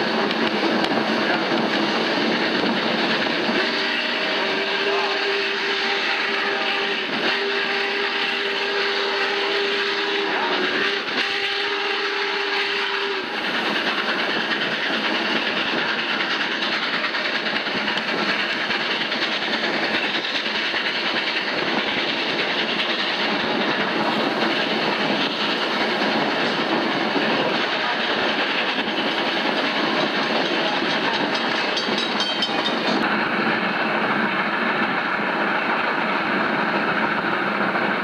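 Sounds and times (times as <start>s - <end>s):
train rolling on rails: 0.0s - 38.0s
steam whistle blowing a chord: 3.6s - 13.3s.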